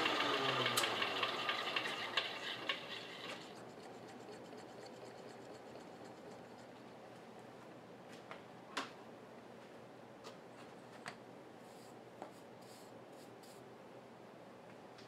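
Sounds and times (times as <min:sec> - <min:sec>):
milling machine cutting: 0:00.0 - 0:06.7
faint steady hum: 0:00.0 - 0:15.0.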